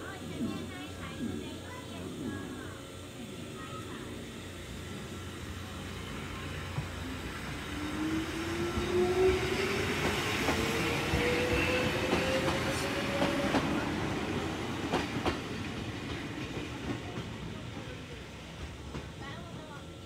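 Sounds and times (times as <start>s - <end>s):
electric train motors whining: 0.0s - 18.6s
train wheels clacking over rail joints: 14.7s - 17.4s.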